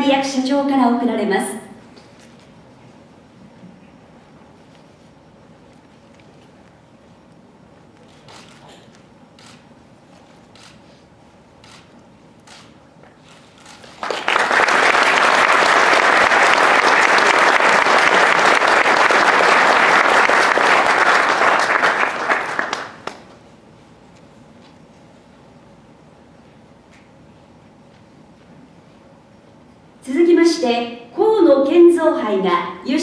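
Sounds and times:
audience applauding: 13.6s - 23.4s.

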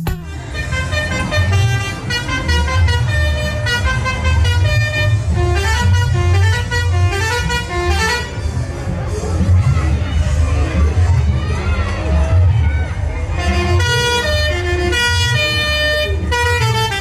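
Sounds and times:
musical horn playing tune: 0.0s - 8.5s.

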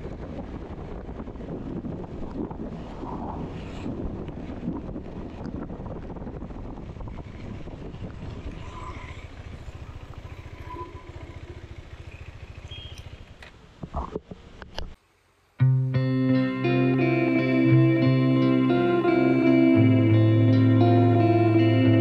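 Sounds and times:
motorcycle engine running: 0.0s - 2.8s, 3.8s - 14.6s
road and wind noise: 0.0s - 22.0s.

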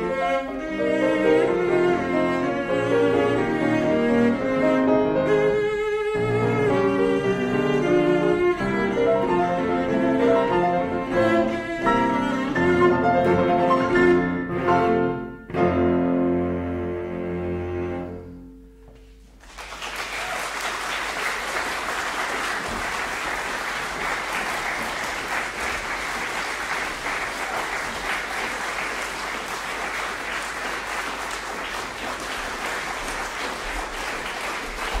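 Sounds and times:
cello and piano chord: 0.0s - 19.0s
audience applauding: 19.4s - 35.0s.

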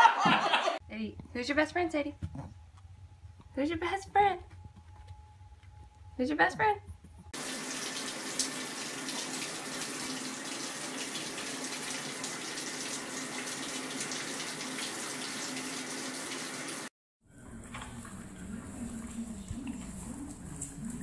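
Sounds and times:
tap water running: 7.3s - 21.0s.

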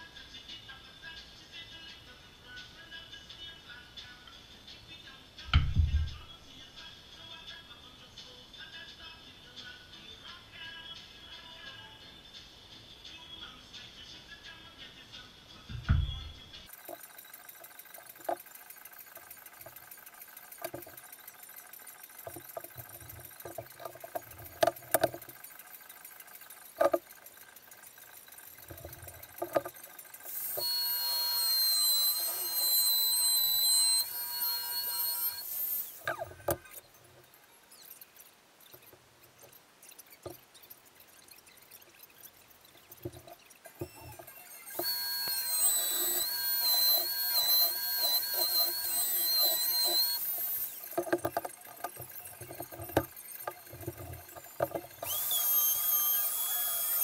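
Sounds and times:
power tool whining: 16.7s - 37.4s, 43.0s - 57.0s.

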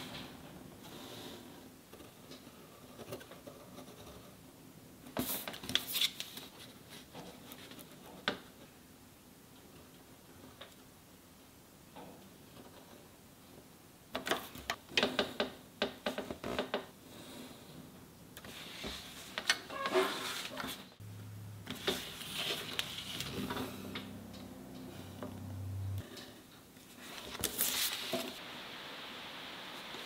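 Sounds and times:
steady low hum: 21.0s - 26.1s.

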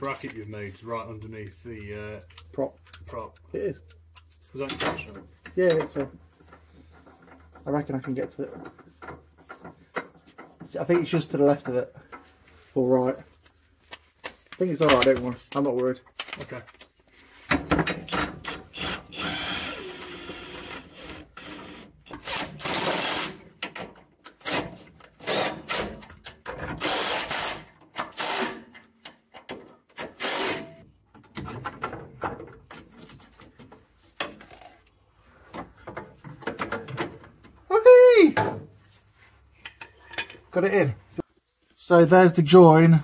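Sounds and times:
cordless drill running: 18.7s - 23.4s
metallic clanks and scrapes: 39.5s - 40.5s.

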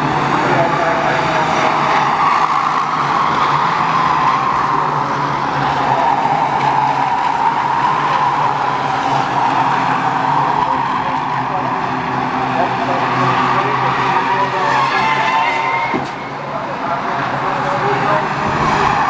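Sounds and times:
race car engines: 0.0s - 19.0s
tyres skidding: 0.0s - 19.0s.

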